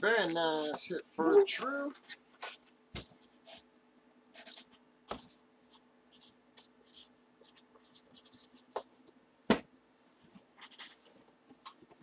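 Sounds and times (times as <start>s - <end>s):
marker pen writing on cardboard: 4.3s - 8.8s.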